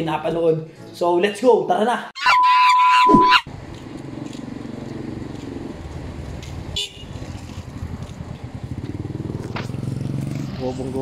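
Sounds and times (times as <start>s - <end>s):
vehicle horn toot: 2.2s - 3.5s, 6.8s - 7.1s.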